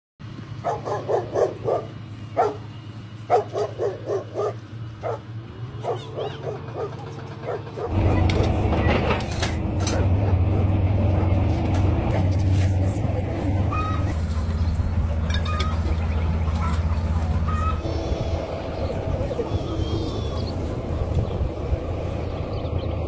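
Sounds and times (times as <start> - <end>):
steady low hum: 0.2 - 23.0
dog barking: 0.6 - 2.6, 3.3 - 8.5, 9.9 - 11.4.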